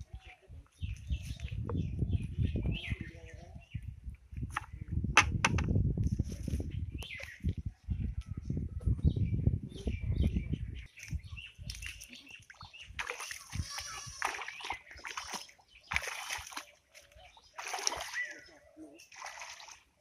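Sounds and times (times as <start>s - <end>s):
muddy water splashing: 11.0s - 20.0s.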